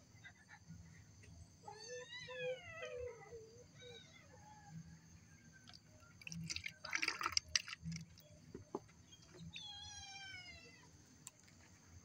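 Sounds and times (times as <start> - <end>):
water pouring and splashing: 5.7 - 9.5.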